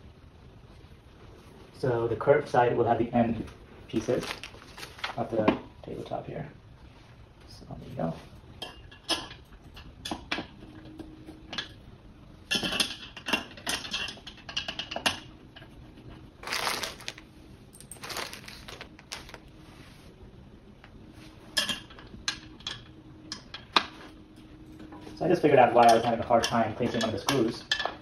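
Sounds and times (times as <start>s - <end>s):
metal parts clinking and knocking: 16.4s - 19.4s.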